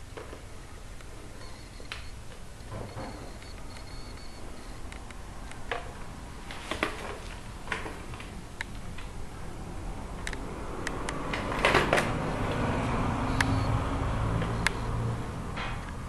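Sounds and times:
sharp clicks: 1.0s - 5.8s, 10.2s - 12.1s, 13.3s - 13.8s, 14.4s - 15.0s.

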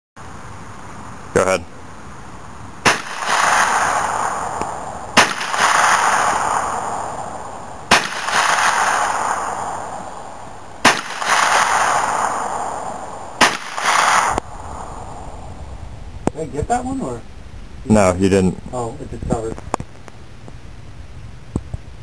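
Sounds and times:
gunshots: 2.8s - 10.2s, 10.8s - 14.4s.

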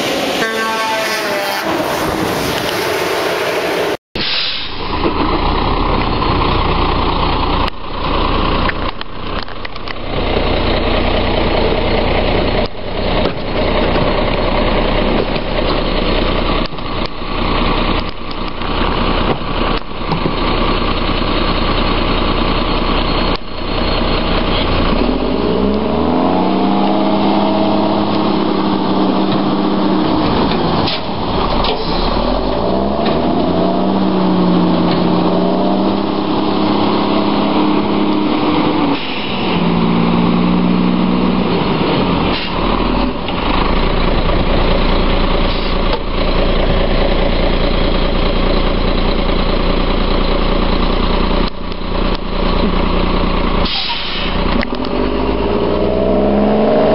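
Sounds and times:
garbage truck diesel engine: 0.0s - 56.9s
clunks and knocks: 19.2s - 20.4s.

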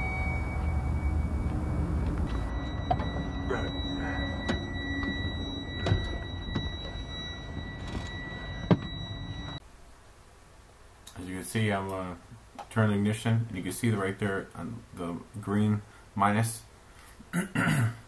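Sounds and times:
faint high tone: 0.0s - 9.6s
low steady rumble: 0.0s - 10.9s
knocks and thuds of climbing: 4.3s - 9.2s.

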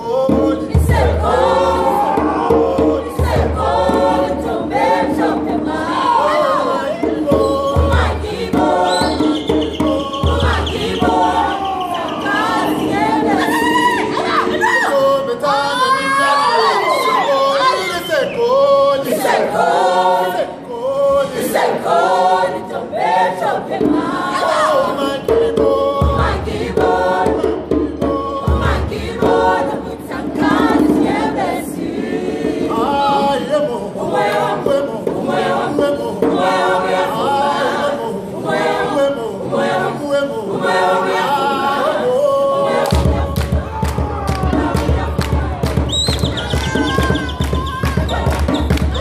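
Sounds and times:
choir singing in harmony: 0.0s - 49.0s
rhythmic hand-clapping: 42.7s - 49.0s.

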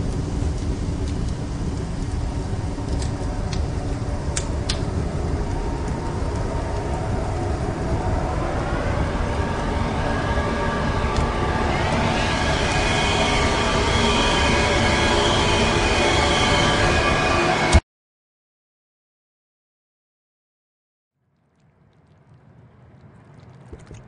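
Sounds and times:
heavy low rumble: 0.0s - 17.8s
rising tones: 3.2s - 17.8s.

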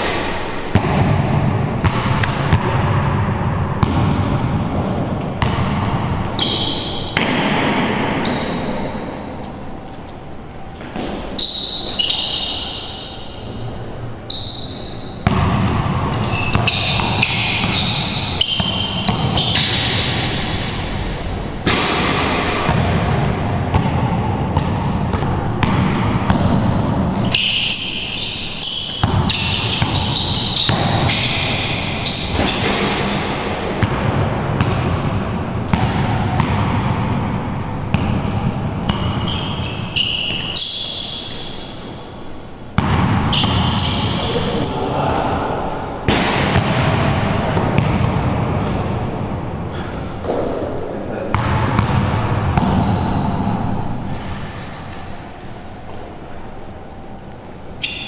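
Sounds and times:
sneakers squeaking: 0.0s - 58.0s
basketball bouncing on concrete: 0.7s - 8.8s, 15.2s - 17.8s, 21.7s - 27.5s, 28.9s - 31.5s, 32.2s - 39.7s, 42.8s - 44.2s, 46.1s - 48.9s, 51.3s - 53.5s.

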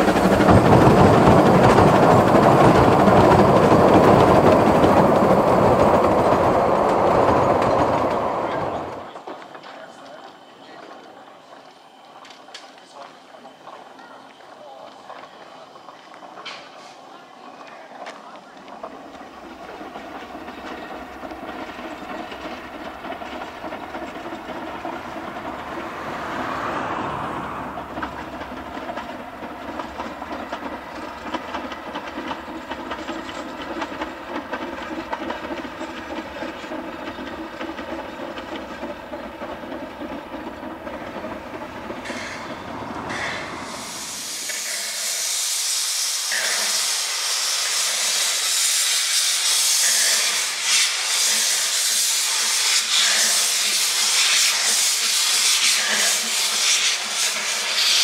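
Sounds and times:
steam train rumble and clatter: 0.0s - 58.0s
loud steam hiss: 19.0s - 58.0s.

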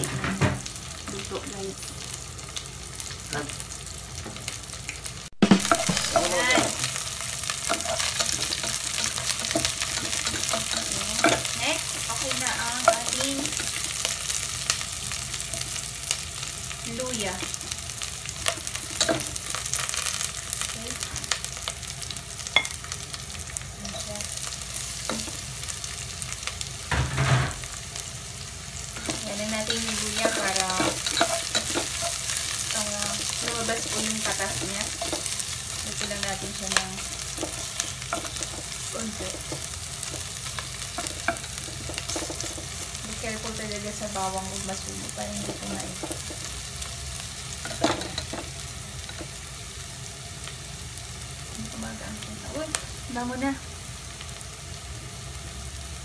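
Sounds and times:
onion sizzling in hot oil: 0.0s - 56.0s
spatula scraping a pan: 29.0s - 36.2s, 37.0s - 43.0s.

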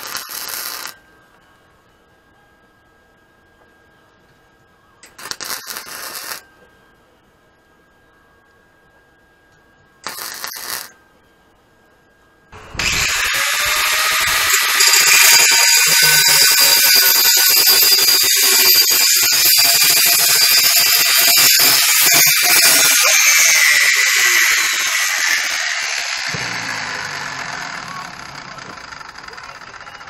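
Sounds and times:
angle grinder cutting steel: 12.6s - 30.0s.

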